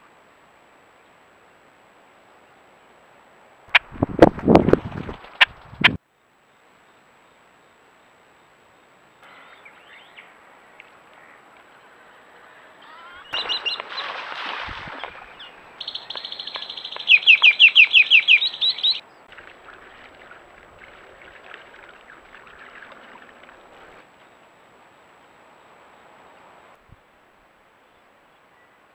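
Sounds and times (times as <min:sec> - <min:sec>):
bird chirping: 0:09.2 - 0:20.4
rustling: 0:19.3 - 0:24.3.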